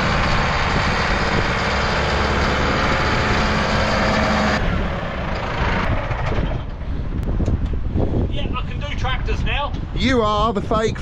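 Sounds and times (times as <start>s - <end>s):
heavy diesel engine running: 0.0s - 7.2s.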